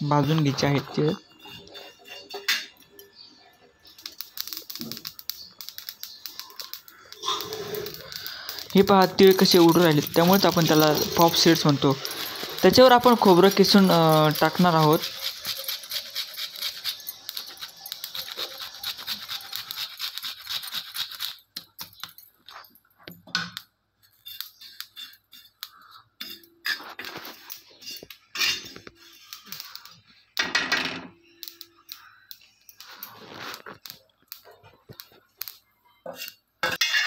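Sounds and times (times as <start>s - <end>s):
seeds crackling in a hot pan: 0.0s - 22.6s, 23.6s - 30.0s, 31.2s - 36.8s
spoon scraping and clinking on pan: 0.2s - 19.8s, 24.0s - 29.8s, 34.6s - 37.0s.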